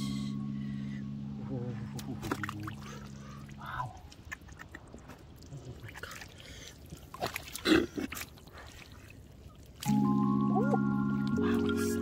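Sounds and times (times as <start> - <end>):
low steady hum: 0.0 - 12.0
water dripping: 1.9 - 12.0
hands sloshing in muddy water: 2.0 - 9.9.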